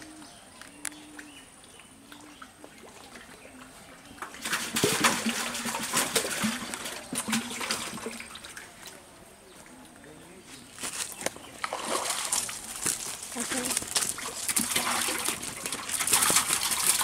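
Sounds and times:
fish splashing and thrashing: 0:04.2 - 0:08.8, 0:10.7 - 0:17.0.

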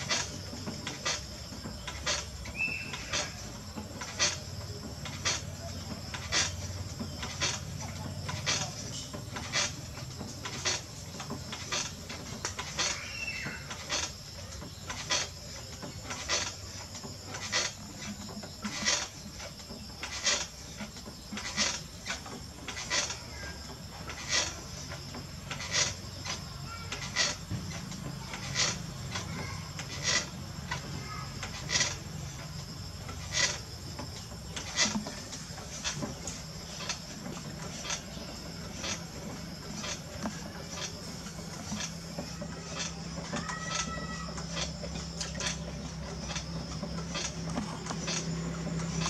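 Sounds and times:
potter's wheel humming: 0:00.0 - 0:49.0
wet clay scraping squeak: 0:00.0 - 0:49.0.

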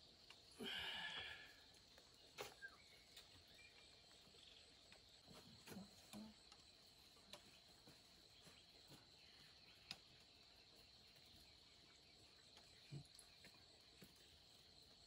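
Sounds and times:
faint insect drone: 0:00.0 - 0:15.0
faint clicks and taps: 0:04.1 - 0:11.5.

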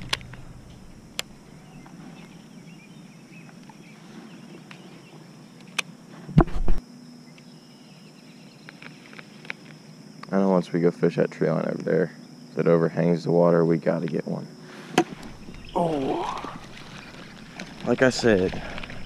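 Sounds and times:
microphone handling rumble: 0:00.0 - 0:02.7, 0:15.1 - 0:19.0
crickets droning: 0:00.0 - 0:19.0
faint outdoor background: 0:00.0 - 0:19.0.

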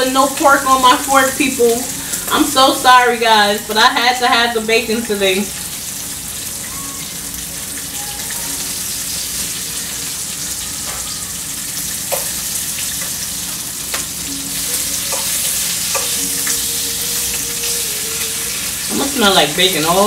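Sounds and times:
bacon sizzling in a frying pan: 0:00.0 - 0:20.0
fork clicking against a pan: 0:15.1 - 0:16.6.

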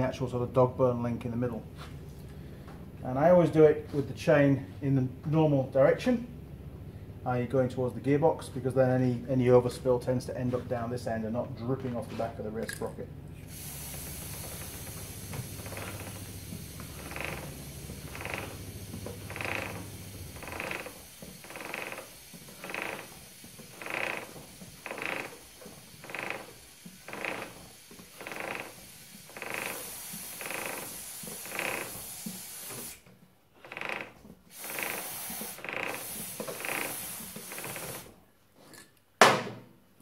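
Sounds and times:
aerosol spray hissing: 0:13.4 - 0:33.0, 0:34.5 - 0:38.1
wheel brake rubbing: 0:13.4 - 0:38.2.

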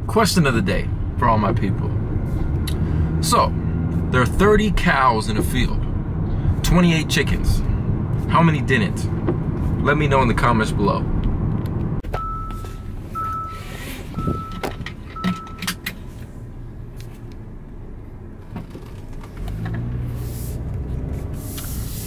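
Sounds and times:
car engine and road rumble: 0:00.0 - 0:22.0
electronic warning chimes: 0:12.2 - 0:13.6, 0:14.2 - 0:15.7.

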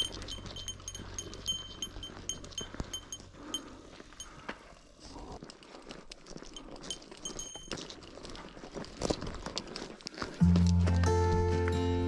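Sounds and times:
small bell jingling: 0:00.0 - 0:04.3, 0:06.5 - 0:08.0
faint trail noise: 0:00.0 - 0:12.0.

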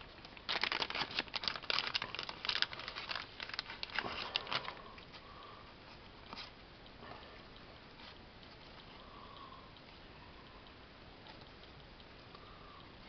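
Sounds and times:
plastic wrap crinkling: 0:00.2 - 0:04.8.

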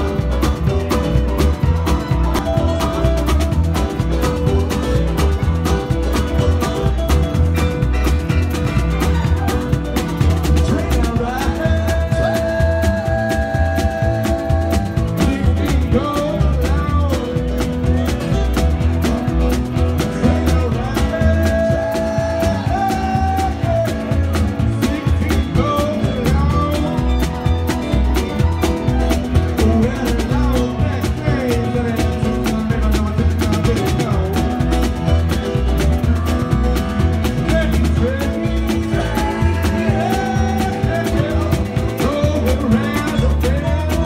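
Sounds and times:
drum kit beat: 0:00.0 - 0:44.0
guitars: 0:00.0 - 0:44.0
live rock band playing: 0:00.0 - 0:44.0
pulsing bass: 0:00.0 - 0:44.0
sliding lead guitar notes: 0:00.0 - 0:44.0.

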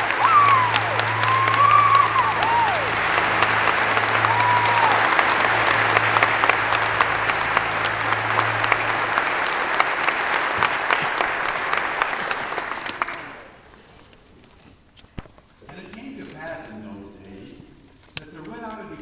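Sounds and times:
audience applauding: 0:00.0 - 0:13.9.

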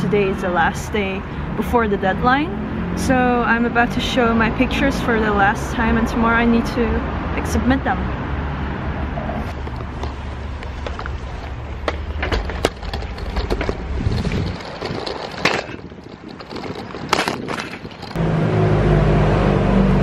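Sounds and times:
wind rushing over microphone: 0:00.8 - 0:18.4
bicycle rattling: 0:09.4 - 0:18.2
sharp clicks and knocks: 0:09.5 - 0:18.2.

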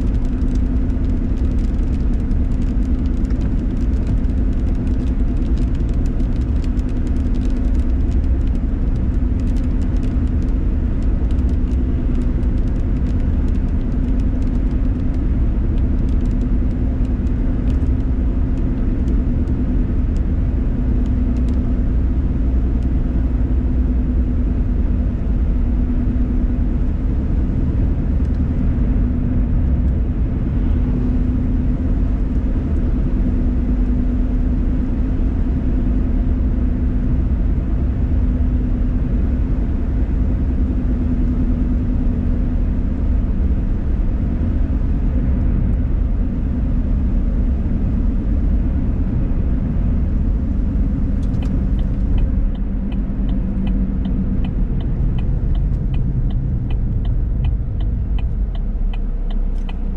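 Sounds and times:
raindrops ticking on windshield: 0:00.0 - 0:21.7, 0:51.2 - 0:59.9
car road noise rumble: 0:00.0 - 0:59.9.

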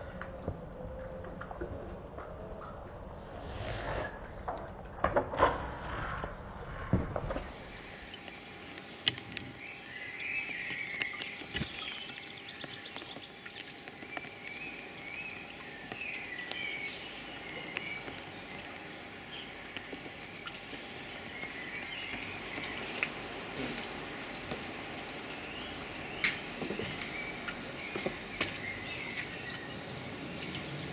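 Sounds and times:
faint steady hum: 0:07.2 - 0:30.9
water splashing onto ground: 0:07.2 - 0:30.9
songbirds singing: 0:07.4 - 0:30.9.

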